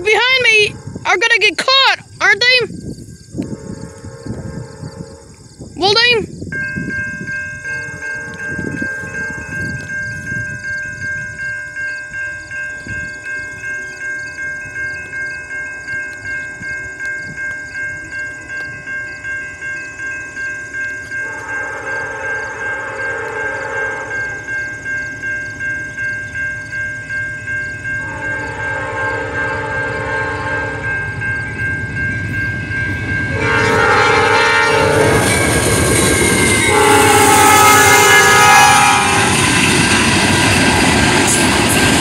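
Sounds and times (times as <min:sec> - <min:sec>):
railroad crossing bell ringing: 0:00.0 - 0:02.8, 0:03.4 - 0:42.0
train rumble: 0:00.0 - 0:42.0
train horn blasts: 0:03.4 - 0:06.1, 0:21.2 - 0:24.4, 0:28.0 - 0:31.6, 0:32.9 - 0:39.7.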